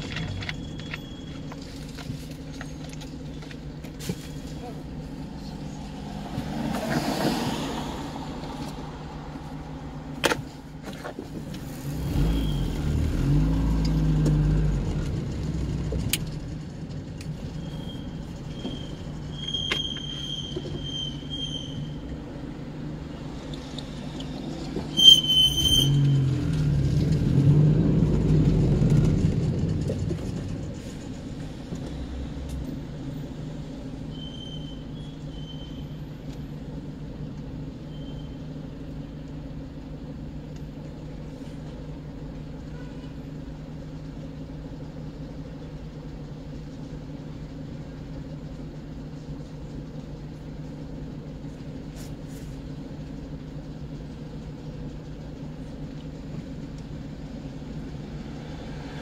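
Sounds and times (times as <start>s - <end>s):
engine and traffic rumble: 0.0s - 59.0s
sharp high squeak: 0.4s - 1.6s, 4.1s - 4.7s, 12.3s - 12.8s, 17.4s - 22.1s, 24.9s - 26.4s, 34.0s - 36.2s, 37.8s - 38.5s.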